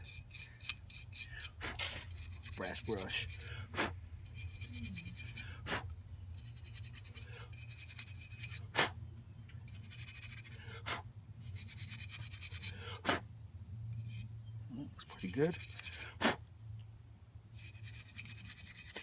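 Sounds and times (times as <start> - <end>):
wire brush scrubbing metal: 0.0 - 8.8, 9.7 - 10.6, 11.4 - 12.8, 15.0 - 16.2, 17.5 - 19.0.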